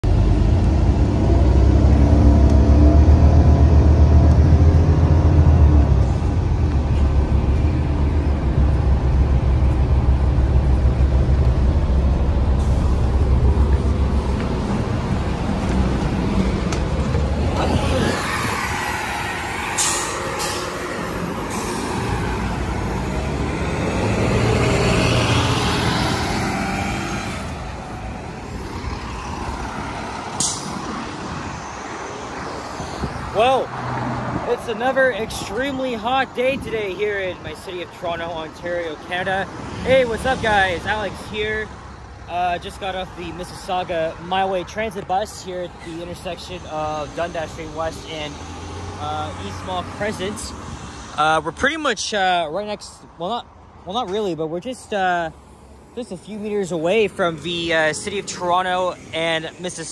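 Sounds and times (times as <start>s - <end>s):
bus engine running: 0.0s - 30.8s
road traffic: 0.0s - 59.9s.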